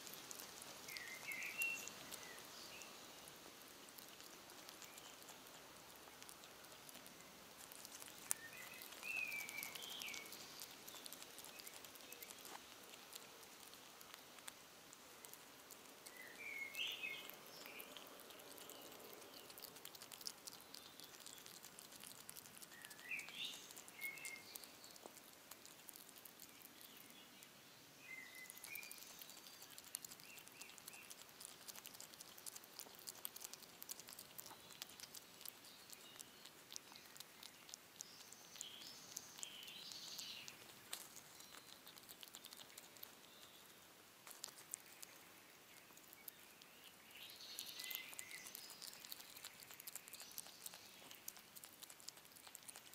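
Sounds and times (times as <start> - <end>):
hedgehog chewing: 0.0 - 52.9
bird chirps: 0.9 - 3.0, 8.2 - 12.4, 16.1 - 19.7, 22.7 - 25.1, 26.4 - 31.2, 35.6 - 42.6, 44.7 - 51.3.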